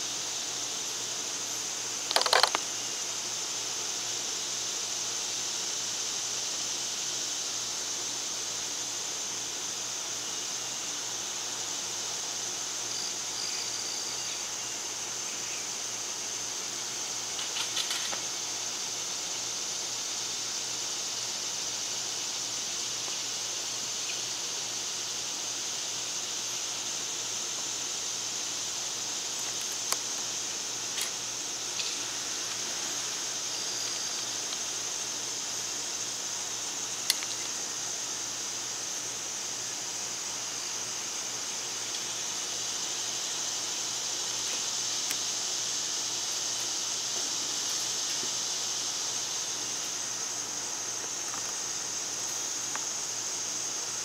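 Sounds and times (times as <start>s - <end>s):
steady high-pitched hiss: 0.0s - 54.0s
woodpecker pecking on wire cage: 2.1s - 2.6s.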